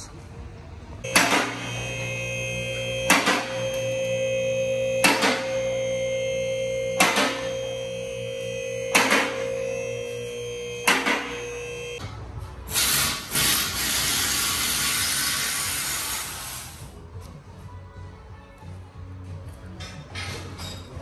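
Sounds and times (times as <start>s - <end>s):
hydraulic pump motor humming: 1.1s - 12.0s.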